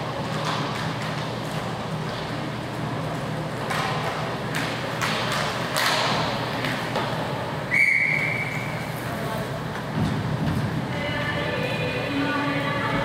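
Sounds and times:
hockey sticks knocking: 0:00.2 - 0:02.3, 0:03.6 - 0:07.3.

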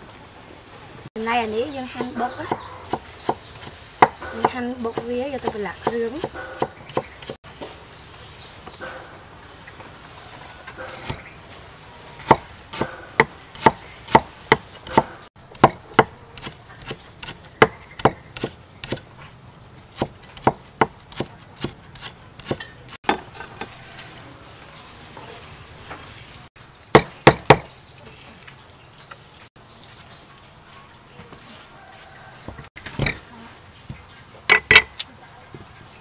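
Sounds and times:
cleaver chopping on wooden block: 0:02.0 - 0:07.4, 0:12.2 - 0:19.0, 0:19.9 - 0:23.3, 0:26.9 - 0:27.7.

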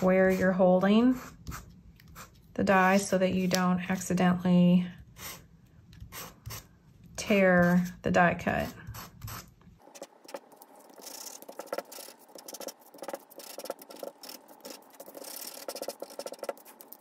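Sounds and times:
sanding disc scratching paper: 0:09.0 - 0:17.0.

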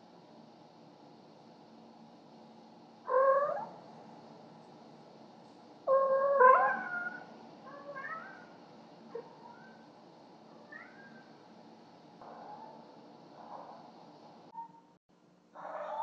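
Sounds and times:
cat yowling and meowing: 0:03.1 - 0:03.8, 0:05.9 - 0:08.5, 0:10.6 - 0:11.2.

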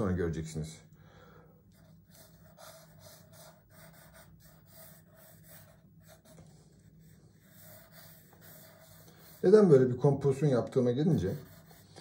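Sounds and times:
low steady hum: 0:00.0 - 0:12.0
pencil scratching on paper: 0:01.7 - 0:09.9, 0:10.8 - 0:12.0.

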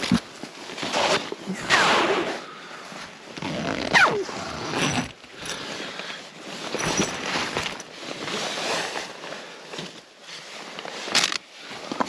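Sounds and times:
nylon fabric rustling: 0:02.8 - 0:11.9.

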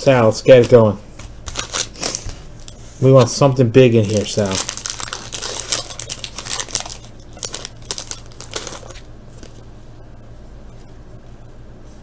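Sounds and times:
wrapper crinkling: 0:01.5 - 0:09.6.

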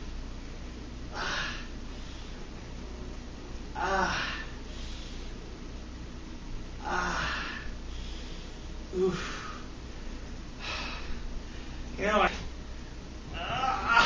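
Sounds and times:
man groaning and exhaling: 0:01.1 - 0:01.7, 0:03.8 - 0:04.6, 0:06.8 - 0:07.7, 0:08.9 - 0:09.6, 0:13.3 - 0:14.0.

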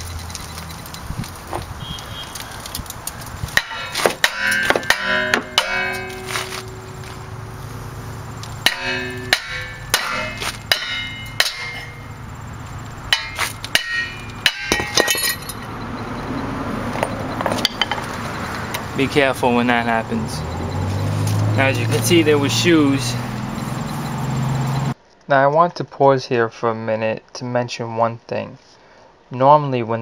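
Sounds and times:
hammer striking metal rotor: 0:03.6 - 0:16.1, 0:17.0 - 0:25.0.

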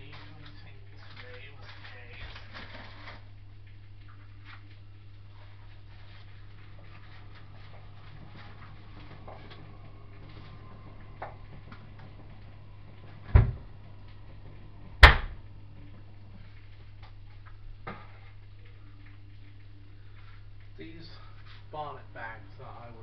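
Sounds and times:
steady low hum: 0:00.0 - 0:23.0
loud sharp knocks: 0:15.0 - 0:15.4.

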